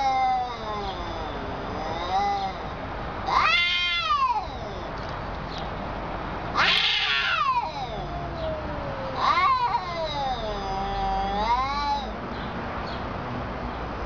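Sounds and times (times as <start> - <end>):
cats yowling: 0.0 - 5.1, 6.5 - 12.2.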